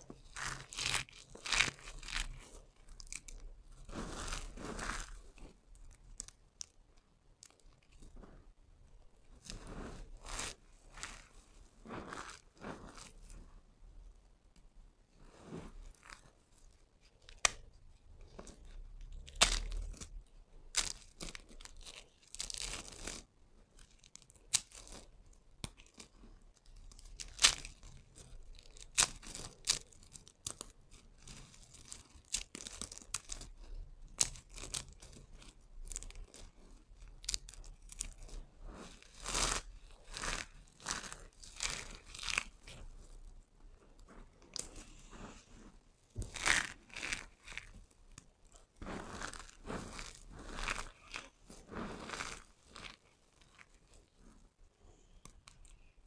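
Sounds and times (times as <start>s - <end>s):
soap cubes crunching and crackling: 0.1s - 6.8s, 18.4s - 23.2s, 23.8s - 25.0s, 26.8s - 43.4s, 46.1s - 54.1s.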